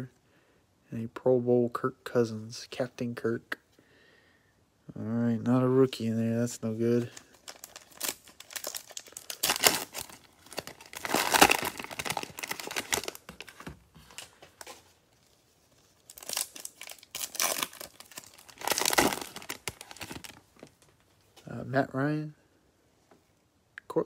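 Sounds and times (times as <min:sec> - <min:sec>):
plastic wrappers crinkling and tearing: 0:06.9 - 0:21.0.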